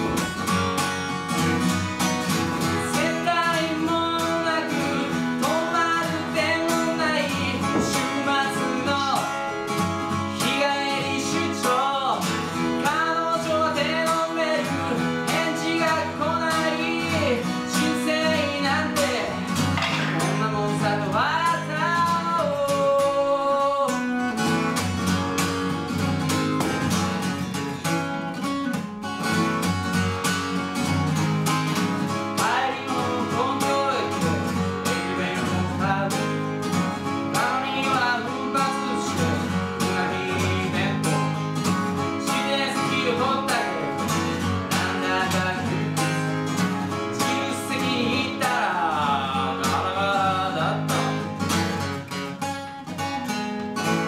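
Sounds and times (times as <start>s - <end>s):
acoustic guitar strumming: 0.0s - 54.0s
man singing: 2.3s - 24.5s, 31.7s - 51.9s.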